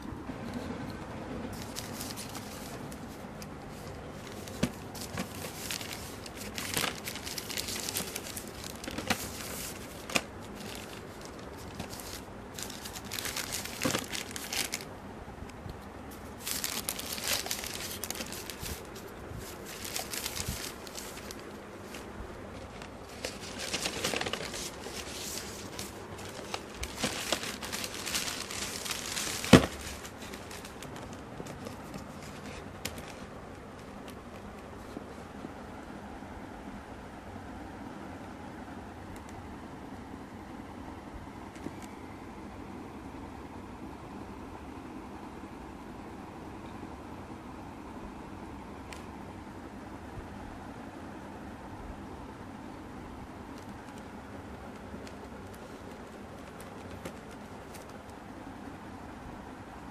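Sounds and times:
plastic bag crinkling and tearing: 0:01.6 - 0:14.9, 0:16.1 - 0:33.2.

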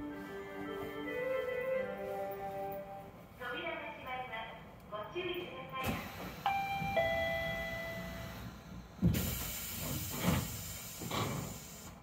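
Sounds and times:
hiss of air: 0:09.0 - 0:12.0.

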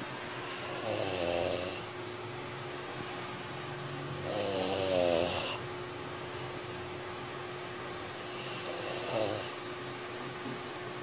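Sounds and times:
faint steady hum: 0:00.0 - 0:11.0
person snoring: 0:00.4 - 0:01.9, 0:04.1 - 0:05.6, 0:08.2 - 0:09.6.

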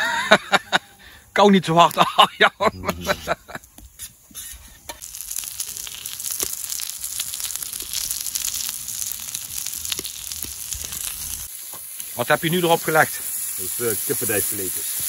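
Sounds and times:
meat sizzling on hot plate: 0:03.8 - 0:15.0.

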